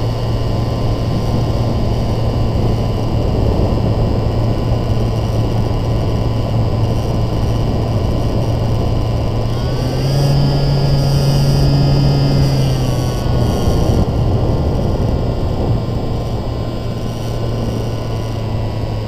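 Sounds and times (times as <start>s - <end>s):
wind rush: 0.0s - 9.7s, 13.1s - 19.0s
model aircraft motor drone: 0.0s - 19.0s.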